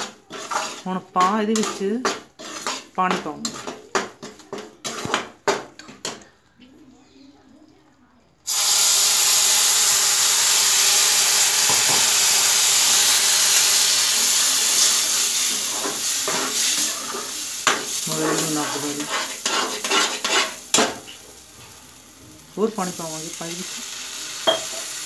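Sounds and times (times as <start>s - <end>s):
metal spoon scraping pan: 0.0s - 6.2s, 13.3s - 21.2s
water sizzling in hot pan: 8.5s - 25.0s.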